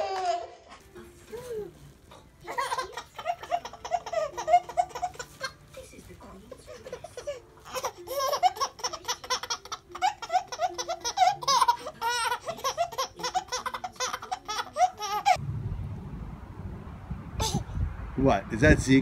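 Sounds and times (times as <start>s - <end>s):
baby laughing: 1.4s - 5.8s, 6.5s - 15.4s.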